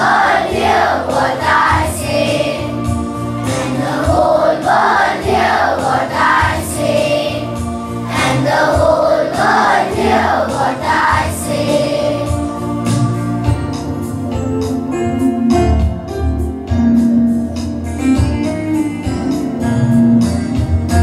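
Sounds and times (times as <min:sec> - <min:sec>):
children's choir singing: 0:00.0 - 0:14.2
instrumental accompaniment: 0:00.0 - 0:21.0.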